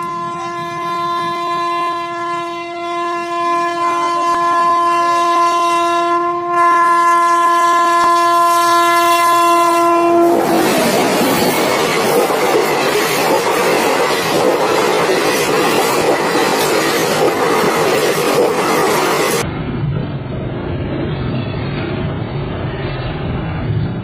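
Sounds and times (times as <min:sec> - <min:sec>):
locomotive horn blast: 0:00.0 - 0:10.8
train rushing past: 0:07.7 - 0:24.0.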